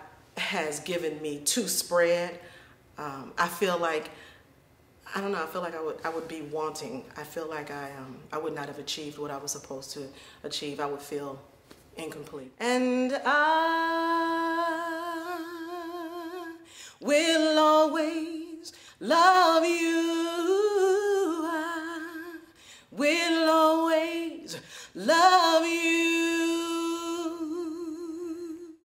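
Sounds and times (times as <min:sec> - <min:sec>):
woman singing a cappella: 0:12.0 - 0:28.8.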